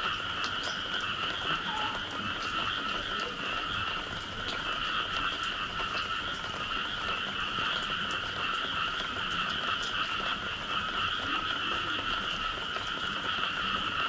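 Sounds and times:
chorus of frogs calling: 0.0 - 14.0.

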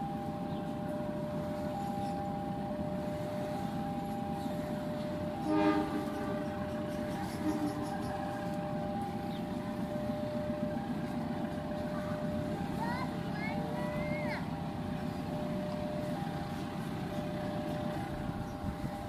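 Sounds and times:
train rumbling past: 0.0 - 19.0
two-note tone: 4.1 - 10.8
train horn blast: 5.0 - 8.7.

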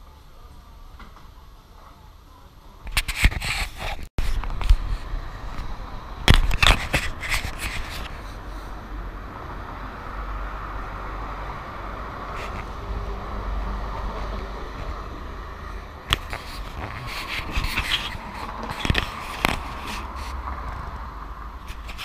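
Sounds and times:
city street traffic: 0.0 - 22.0
fingers rubbing on camera: 6.4 - 8.4, 16.1 - 20.4.

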